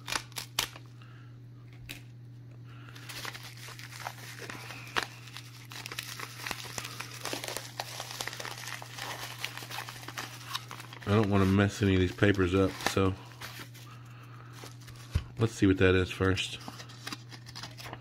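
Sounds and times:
steady low hum: 0.0s - 18.0s
bubble wrap crinkling: 2.9s - 15.2s.

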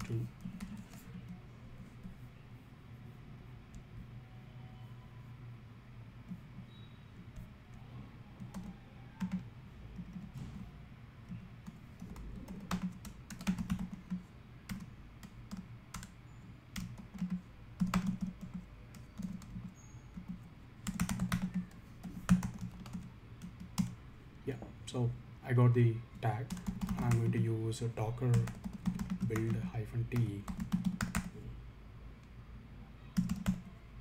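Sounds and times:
typing on computer keyboard: 8.4s - 10.4s, 11.3s - 24.0s, 26.4s - 27.4s, 28.3s - 31.3s, 33.2s - 33.7s.

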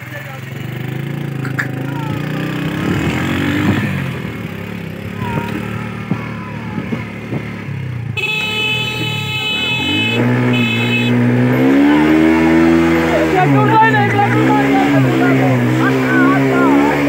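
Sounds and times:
motorcycle engine accelerating: 0.0s - 17.0s
motorcycle horn: 8.0s - 17.0s.

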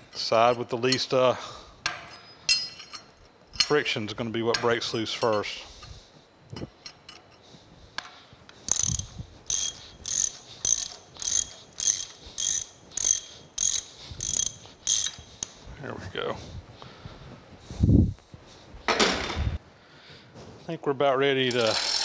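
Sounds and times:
ratchet wrench clicking: 8.6s - 15.6s, 21.5s - 22.0s.

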